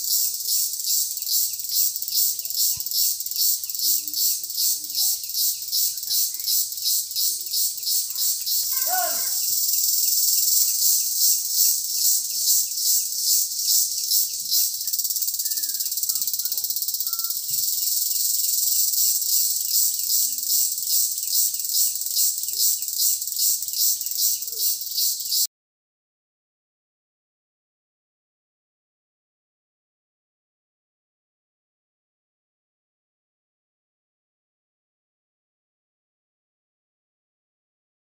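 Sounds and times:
insects buzzing in trees: 0.0 - 25.5.

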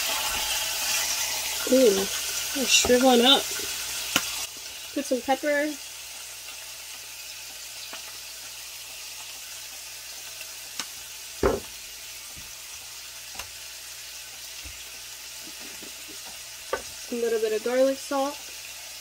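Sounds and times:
fish frying in a skillet: 0.0 - 19.0
thump: 11.4 - 11.7.

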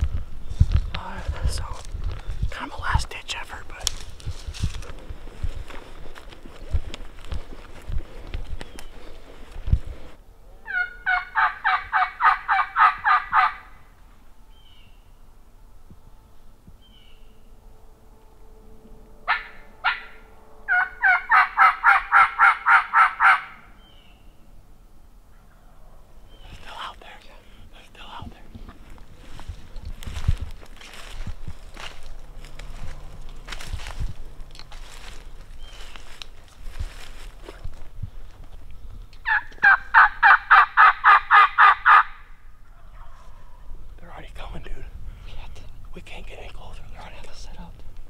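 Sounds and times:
turkey call yelps: 10.6 - 13.8, 19.3 - 24.0, 39.2 - 43.6
evenly spaced calls: 10.6 - 15.4, 19.2 - 24.5, 25.2 - 37.5, 39.2 - 47.7.

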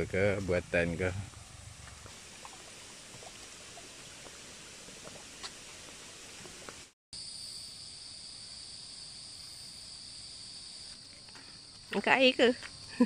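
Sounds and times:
soft outdoor background: 0.0 - 13.0
high-pitched insect chorus: 7.2 - 13.0.

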